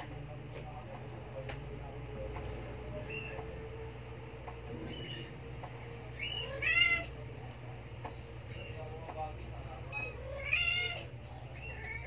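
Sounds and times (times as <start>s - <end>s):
steady low hum: 0.0s - 12.0s
kittens mewing: 6.2s - 7.2s, 9.9s - 12.0s.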